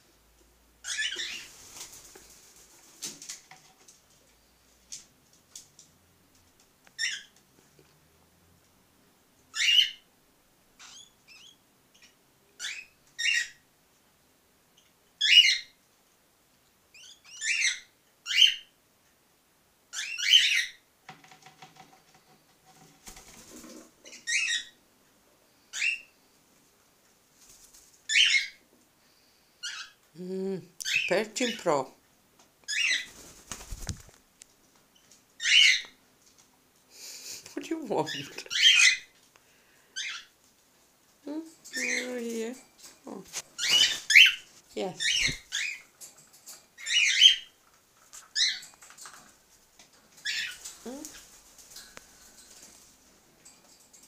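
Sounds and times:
birds chirping: 0.8 - 1.6, 35.0 - 36.0, 39.9 - 40.4, 41.7 - 46.0, 46.8 - 47.6, 48.2 - 49.1, 50.1 - 52.8.

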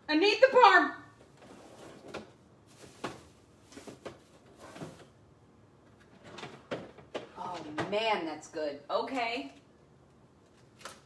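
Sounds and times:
knocks of doors and drawers: 6.1 - 8.1.

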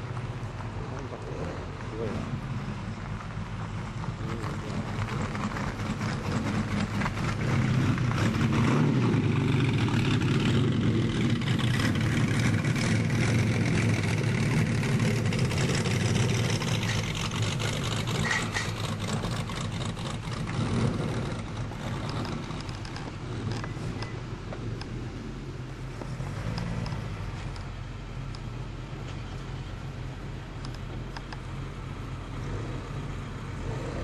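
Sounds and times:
car engine pulling away: 0.0 - 34.0.

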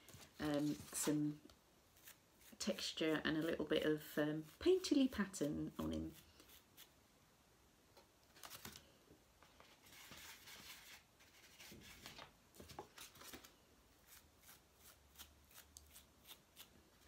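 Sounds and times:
brush rubbing in paint: 2.0 - 7.0.

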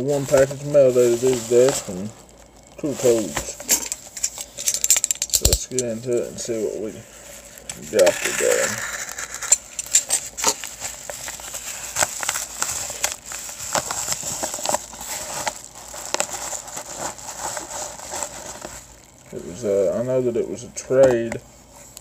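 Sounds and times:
paper rustling: 0.0 - 4.4, 7.2 - 19.1
paper crackling and crinkling: 0.0 - 4.6, 5.4 - 19.5.

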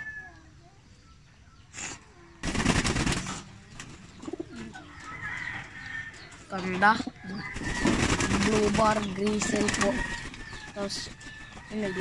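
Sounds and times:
pigeons cooing: 1.6 - 12.0
wings fluttering: 2.4 - 12.0.

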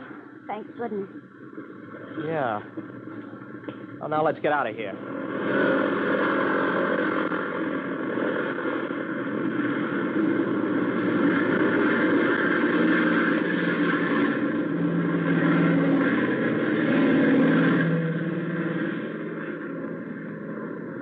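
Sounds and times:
plane engine drone: 0.0 - 21.0.

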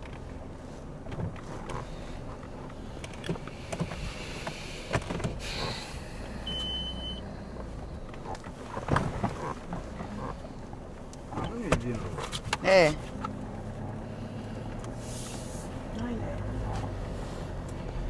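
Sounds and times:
car engine and road rumble: 0.0 - 18.0
brief high beep: 6.5 - 7.2.

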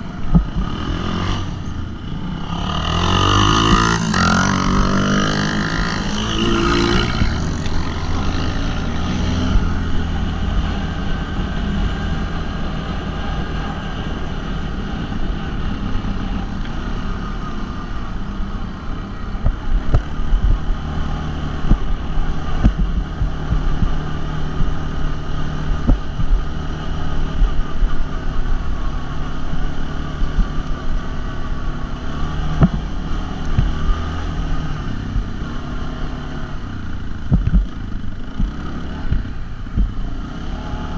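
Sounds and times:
quad bike engine running: 0.0 - 40.9
knocks and thumps on rough track: 0.3 - 0.7, 19.4 - 24.9, 25.6 - 26.8, 32.4 - 34.2, 37.2 - 40.0
wind on microphone: 17.9 - 31.0, 36.5 - 40.2.

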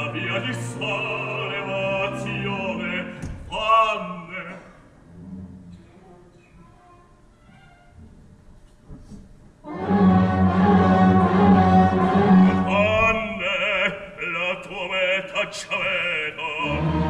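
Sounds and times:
opera orchestra playing: 0.0 - 4.5, 9.6 - 17.0
baritone singing with vibrato: 0.0 - 4.7, 9.7 - 17.0.

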